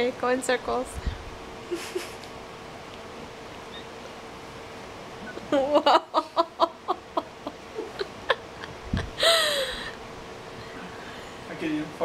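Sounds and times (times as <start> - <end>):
faint room hum: 0.0 - 12.0
person laughing: 1.7 - 2.2, 5.3 - 10.0.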